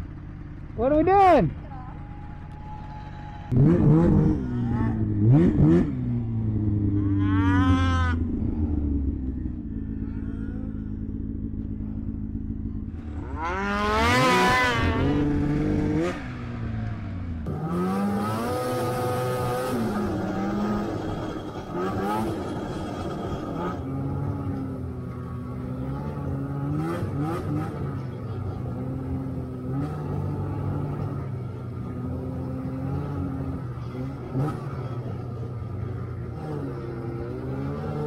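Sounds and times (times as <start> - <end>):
snowmobile engines revving: 0.0 - 38.0
snowmobile pulling away: 0.0 - 38.0.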